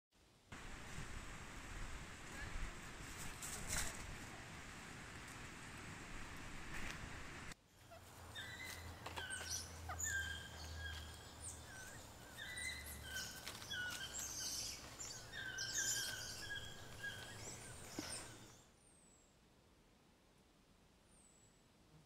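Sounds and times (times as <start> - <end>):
monkeys chirping: 7.8 - 18.6.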